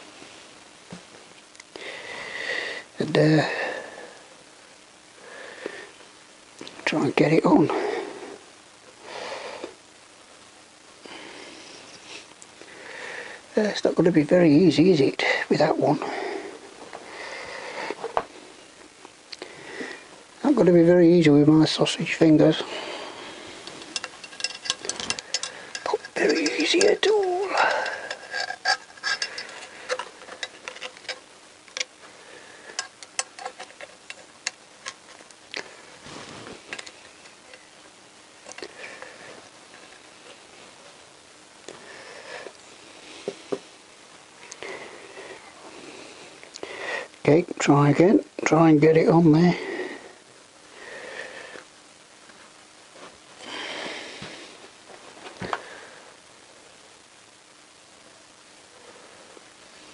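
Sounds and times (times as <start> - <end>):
soft breaths through nose: 16.0 - 18.7, 49.6 - 51.8, 53.0 - 56.2
metal tool clicking on metal: 23.8 - 27.1.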